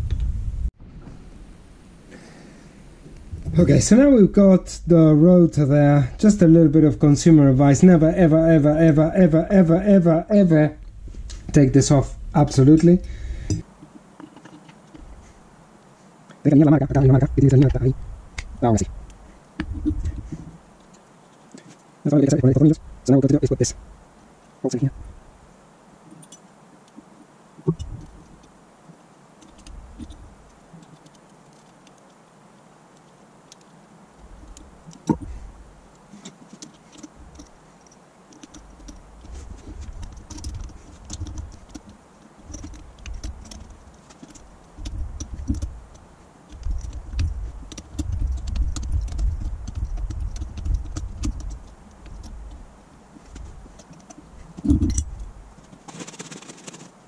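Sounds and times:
handling bumps: 0:06.2 - 0:15.5, 0:16.8 - 0:22.4, 0:26.1 - 0:28.6, 0:29.3 - 0:32.2, 0:33.0 - 0:57.0
small metallic clicks: 0:26.1 - 0:28.6, 0:29.4 - 0:32.2, 0:33.0 - 0:56.9.

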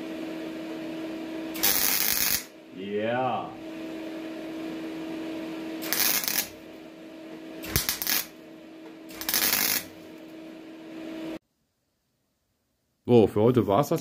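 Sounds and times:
welding machine hum: 0:00.0 - 0:11.4
welder crackling bursts: 0:01.5 - 0:03.4, 0:05.8 - 0:06.6, 0:07.6 - 0:08.4, 0:09.1 - 0:10.1.

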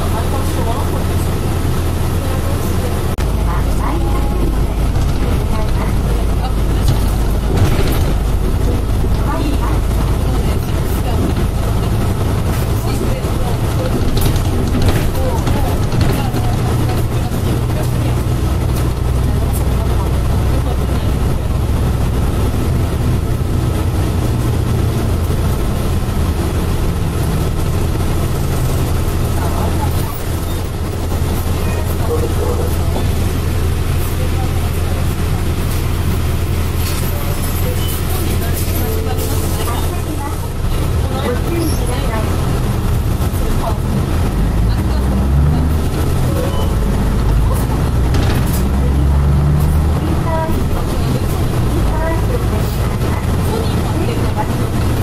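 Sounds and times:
streetcar motor and wheels humming: 0:00.0 - 0:55.0
tram rumbling on track: 0:00.0 - 0:55.0
sharp clicks and rattles: 0:03.1 - 0:41.6, 0:42.2 - 0:55.0.

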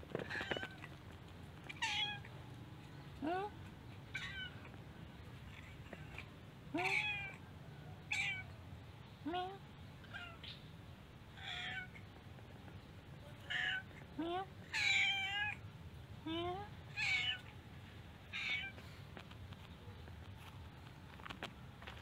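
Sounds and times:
cat meowing: 0:00.2 - 0:00.9, 0:01.6 - 0:02.3, 0:04.1 - 0:04.7, 0:05.5 - 0:07.4, 0:08.1 - 0:08.5, 0:10.0 - 0:10.5, 0:11.4 - 0:12.0, 0:13.4 - 0:13.9, 0:14.6 - 0:15.6, 0:16.9 - 0:17.5, 0:18.3 - 0:18.8.

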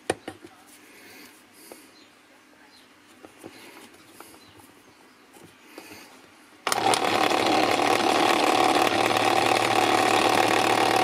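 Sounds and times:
electric paint shaker running: 0:06.6 - 0:11.0.

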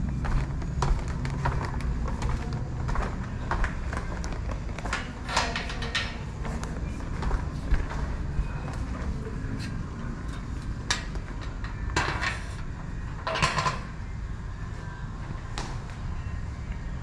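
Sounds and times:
steady low rumble: 0:00.0 - 0:11.9.

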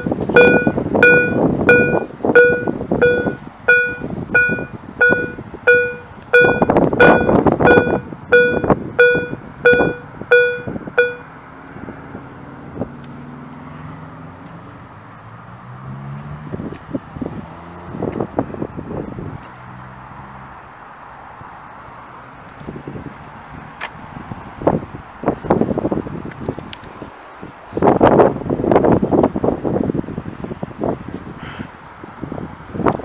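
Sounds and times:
level-crossing warning bell: 0:00.0 - 0:11.3.

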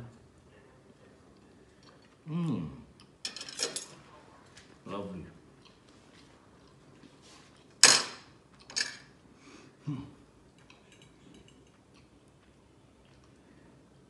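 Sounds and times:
cutlery scraping a plate: 0:10.6 - 0:11.7.

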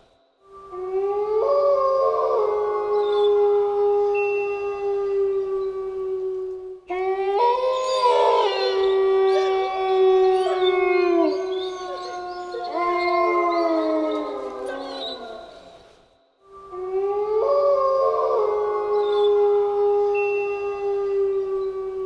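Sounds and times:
wolves howling: 0:00.7 - 0:15.9, 0:16.7 - 0:22.0.

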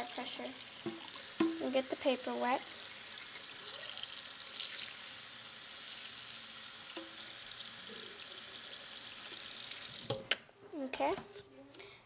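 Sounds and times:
faucet water splashing on paper: 0:02.8 - 0:10.3.

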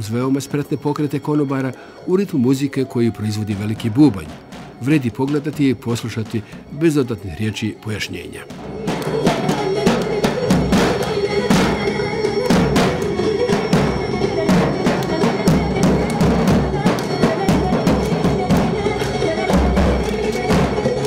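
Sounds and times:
bass drum beaten: 0:03.4 - 0:06.9, 0:08.5 - 0:21.0.

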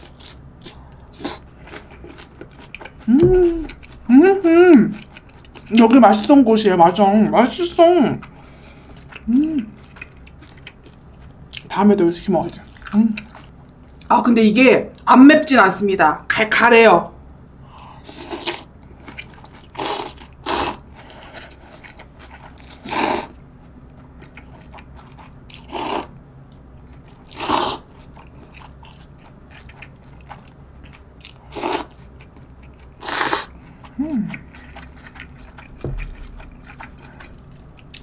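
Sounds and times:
quiet chewing: 0:00.1 - 0:04.2, 0:27.9 - 0:38.0
person slurping noodles: 0:27.4 - 0:27.8, 0:33.0 - 0:33.5.

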